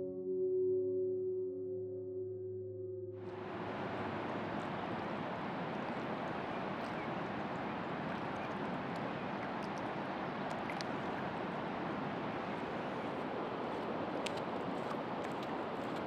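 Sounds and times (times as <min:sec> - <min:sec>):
river water rushing: 0:03.3 - 0:16.0
faint high ticks: 0:08.1 - 0:11.0, 0:13.7 - 0:16.0.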